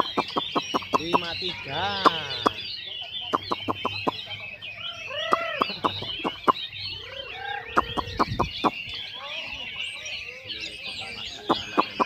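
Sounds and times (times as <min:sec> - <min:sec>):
sharp bird call notes: 0:00.0 - 0:09.5
lower arching bird calls: 0:00.0 - 0:12.0
songbirds chirping and trilling: 0:00.0 - 0:12.0.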